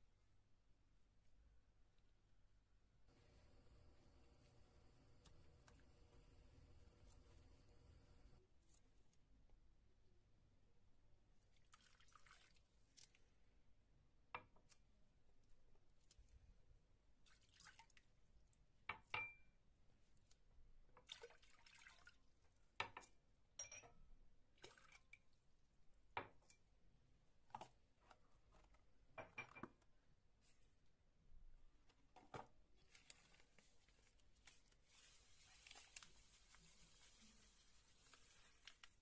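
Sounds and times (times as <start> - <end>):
water dripping: 11.5 - 13.2.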